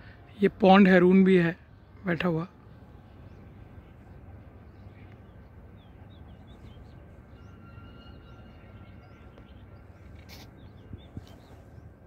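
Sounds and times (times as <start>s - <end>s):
small birds chirping: 2.6s - 12.0s
thin steady whistle: 7.4s - 9.3s.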